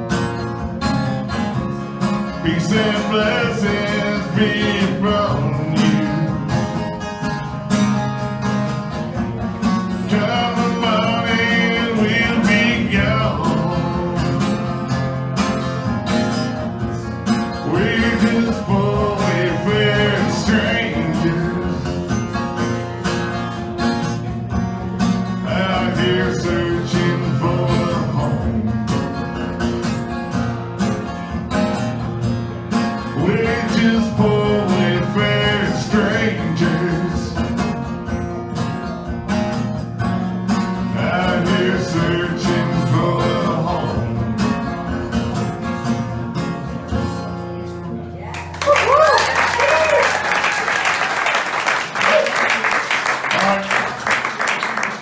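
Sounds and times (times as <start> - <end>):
acoustic guitar strummed: 0.0 - 48.2
man singing: 2.3 - 6.8, 10.0 - 15.0, 17.5 - 22.3, 25.4 - 29.2, 33.1 - 37.8, 40.8 - 44.8.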